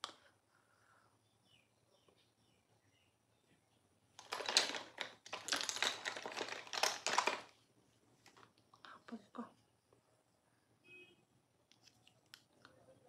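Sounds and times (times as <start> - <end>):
makeup items rummaged through: 4.2 - 7.5.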